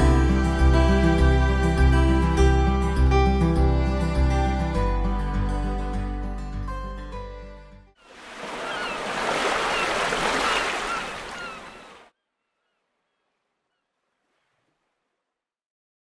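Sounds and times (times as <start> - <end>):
ocean waves washing: 8.0 - 12.1
birds calling: 8.0 - 14.6.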